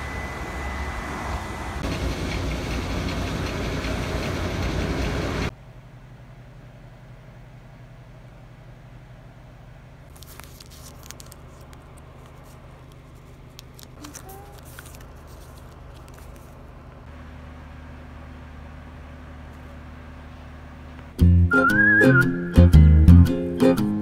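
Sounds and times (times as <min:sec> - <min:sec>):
low hum: 0:00.0 - 0:21.5
fabric rustling: 0:10.1 - 0:16.8.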